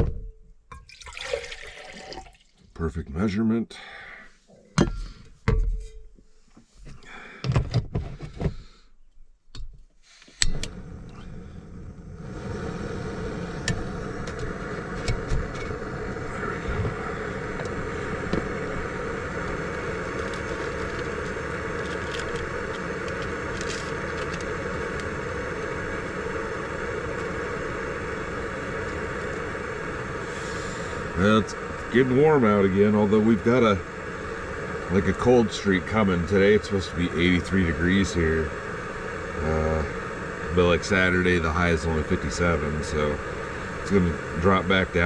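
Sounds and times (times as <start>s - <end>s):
gas burner hissing: 10.0s - 45.0s.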